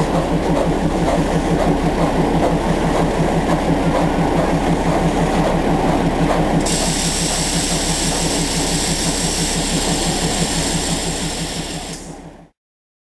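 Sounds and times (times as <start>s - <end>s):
steam hissing from locomotive: 6.6s - 12.3s.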